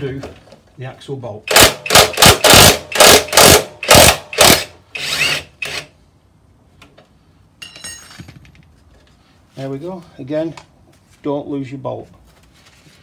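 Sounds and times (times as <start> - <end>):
impact wrench hammering: 1.5 - 5.9.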